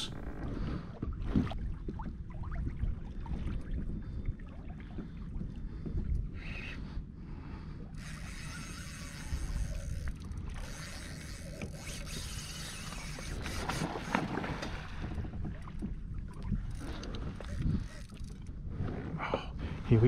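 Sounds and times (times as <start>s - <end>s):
water splashing against hull: 0.0s - 19.9s
wind buffeting microphone: 7.9s - 20.0s.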